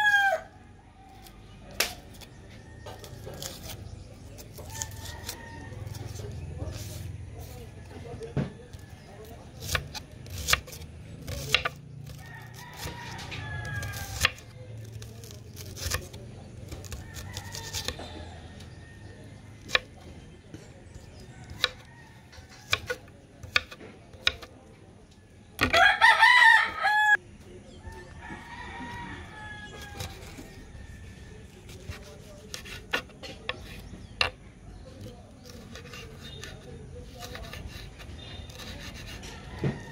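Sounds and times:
rooster crowing: 0:00.0 - 0:01.2, 0:04.7 - 0:06.1, 0:12.1 - 0:14.2, 0:25.7 - 0:27.2, 0:27.8 - 0:31.4, 0:39.2 - 0:39.9
knife slicing vegetables: 0:01.2 - 0:18.1, 0:20.9 - 0:24.5, 0:25.6 - 0:25.8, 0:29.7 - 0:30.6, 0:31.4 - 0:34.4, 0:35.0 - 0:39.9
knife tapping wooden board: 0:22.5 - 0:24.5, 0:37.2 - 0:37.8.

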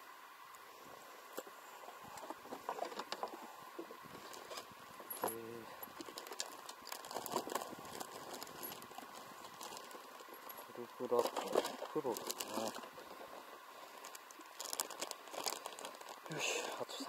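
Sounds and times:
lure packets rustling: 0:04.0 - 0:17.0.

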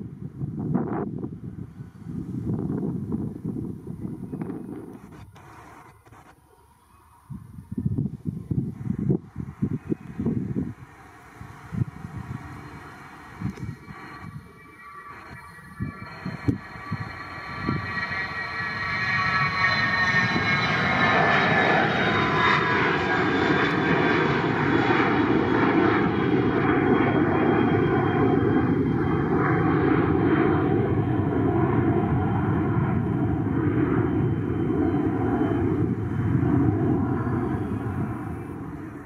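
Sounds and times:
aircraft engine roar: 0:00.0 - 0:39.0
aircraft engine whine: 0:00.0 - 0:39.0.

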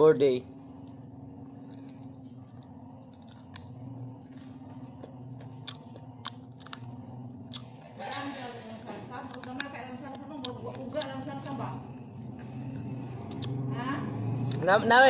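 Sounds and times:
low hum: 0:00.0 - 0:14.6
chewing crunchy food: 0:00.6 - 0:08.0, 0:09.1 - 0:11.6, 0:12.2 - 0:13.7.

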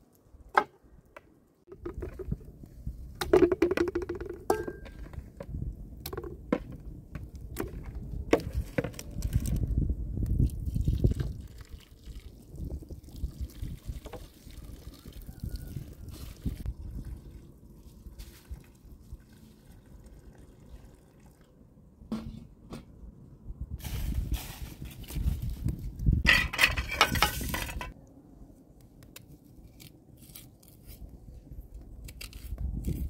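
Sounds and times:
water poured from a kettle: 0:16.1 - 0:21.5.

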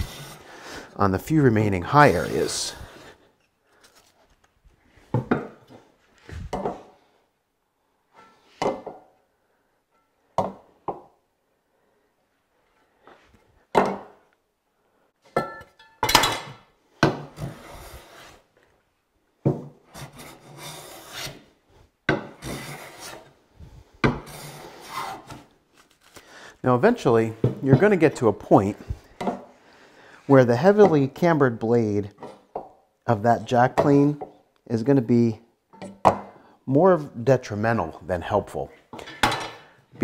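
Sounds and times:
hand plane shaving wood: 0:19.9 - 0:21.5, 0:22.4 - 0:23.3.

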